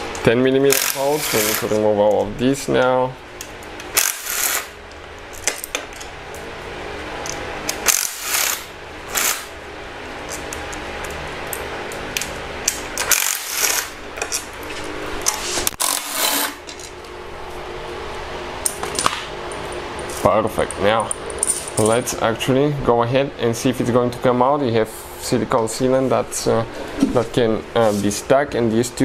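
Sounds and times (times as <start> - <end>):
cordless ratchet motor whirring: 0.7 - 1.7, 3.9 - 4.7, 7.7 - 9.5, 13.0 - 14.0.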